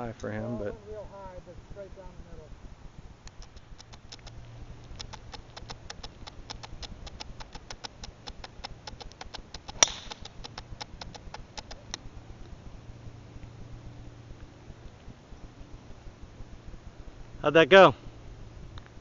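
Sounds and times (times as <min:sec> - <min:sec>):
fast high ticks: 0:03.2 - 0:12.6
golf club striking ball: 0:09.7 - 0:10.6.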